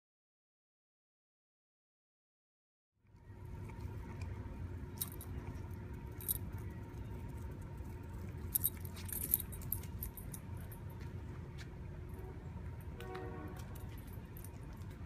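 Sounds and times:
low outdoor rumble: 0:03.0 - 0:15.0
dog collar tags jingling: 0:04.9 - 0:06.6, 0:07.3 - 0:10.9, 0:13.6 - 0:15.0.

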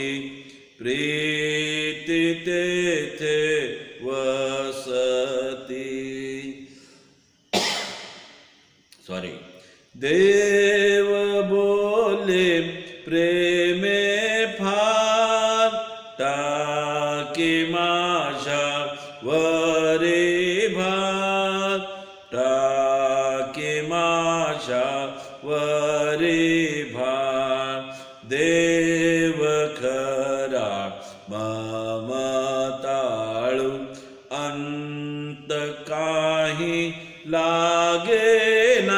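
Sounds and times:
man singing a hymn: 0:00.0 - 0:06.6, 0:10.0 - 0:38.9.

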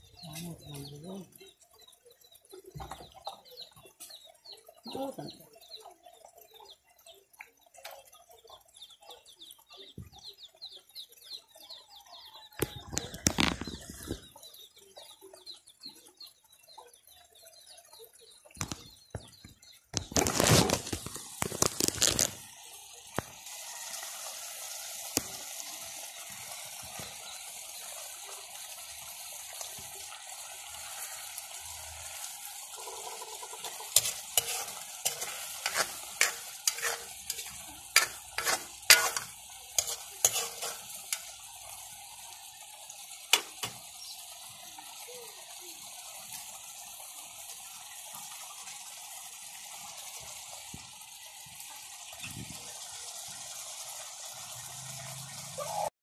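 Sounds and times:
food sizzling in a pan: 0:00.0 - 0:55.9
metal spoon clinking against pan: 0:33.6 - 0:41.3.

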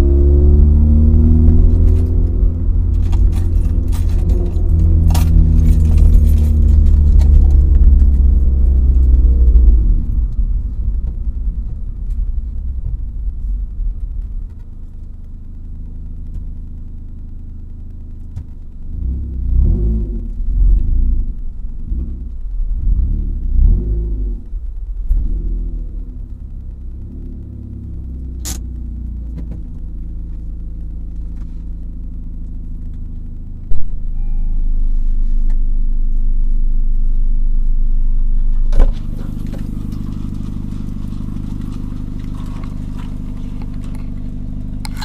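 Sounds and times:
engine throttle surges: 0:00.0 - 0:17.1
car engine droning: 0:00.0 - 0:45.0.

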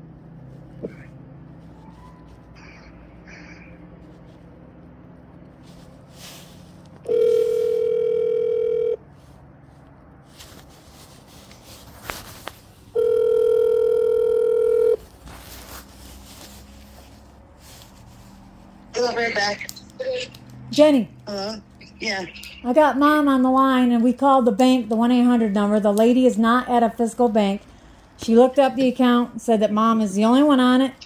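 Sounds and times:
telephone ringback tone: 0:07.0 - 0:09.0, 0:13.0 - 0:15.0.

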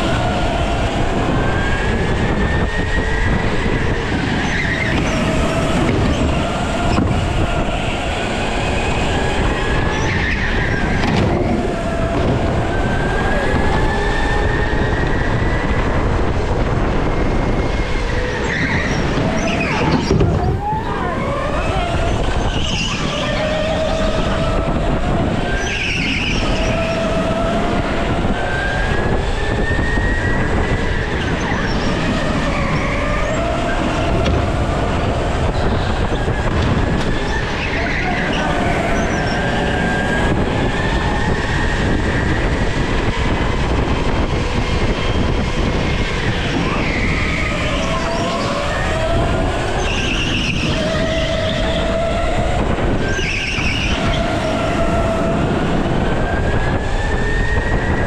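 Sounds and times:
go-kart motor: 0:00.0 - 0:58.0
tyre squeals: 0:04.0 - 0:07.7, 0:09.8 - 0:12.0, 0:17.7 - 0:27.4, 0:37.1 - 0:40.1, 0:46.5 - 0:56.4.

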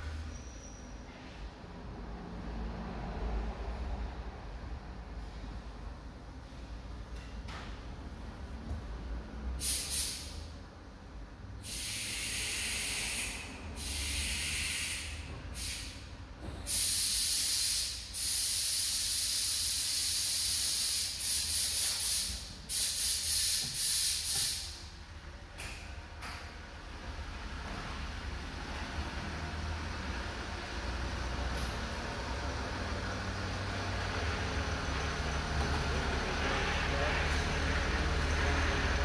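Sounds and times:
loud hissing bursts: 0:09.6 - 0:10.4, 0:11.6 - 0:16.0, 0:16.7 - 0:24.9.

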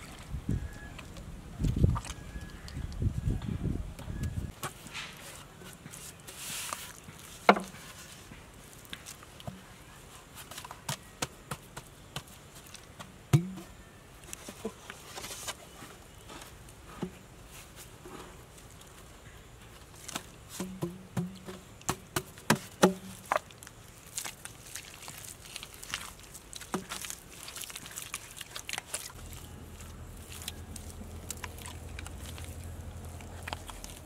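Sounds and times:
bamboo tubes knocking: 0:07.5 - 0:07.8, 0:20.5 - 0:23.4.

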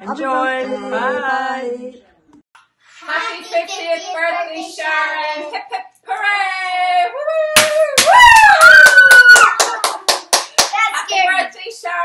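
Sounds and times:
girls singing: 0:03.0 - 0:05.8.

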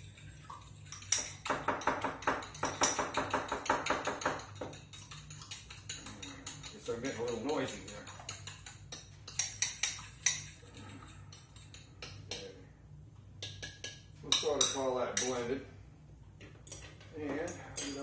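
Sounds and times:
fork clinking against bowl: 0:00.8 - 0:12.6.

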